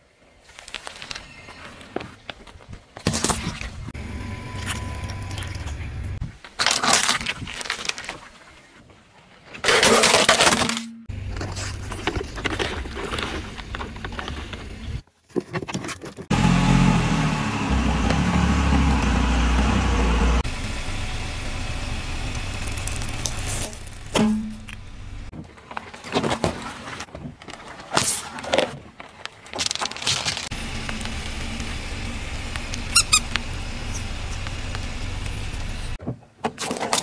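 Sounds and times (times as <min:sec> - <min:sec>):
car engine: 0:04.0 - 0:06.2, 0:16.3 - 0:25.3, 0:30.5 - 0:36.0.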